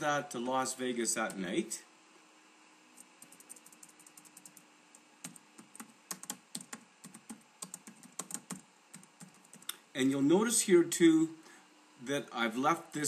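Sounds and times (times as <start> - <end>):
typing on computer keyboard: 3.2 - 4.6, 5.2 - 9.7.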